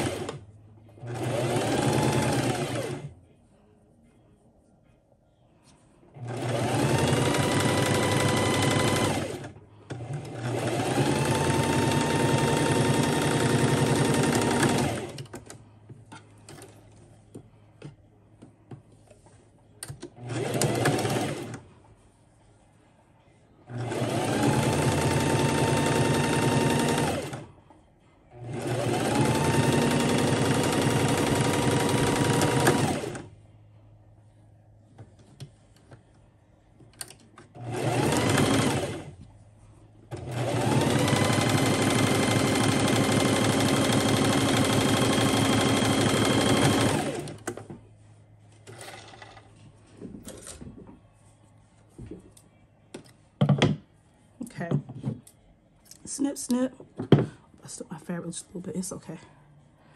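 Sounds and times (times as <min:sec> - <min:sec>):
sewing machine motor whine: 0:06.2 - 0:15.2, 0:23.7 - 0:27.4, 0:28.4 - 0:33.3, 0:37.6 - 0:39.1, 0:40.1 - 0:47.4.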